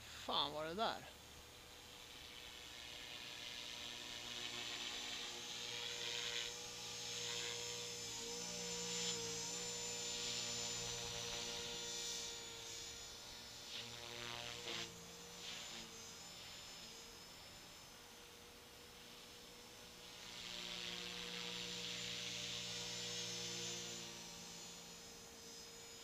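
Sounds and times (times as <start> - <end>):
rc helicopter motor whine: 0.0 - 26.0.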